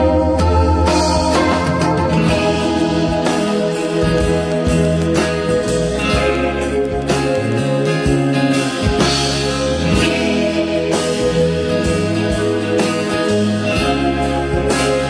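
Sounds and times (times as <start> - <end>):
guitar music with beat over loudspeakers: 0.0 - 15.0.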